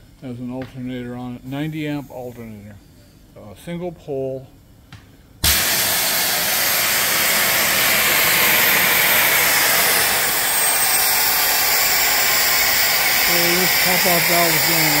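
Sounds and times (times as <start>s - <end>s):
safety valve venting steam: 5.4s - 15.0s.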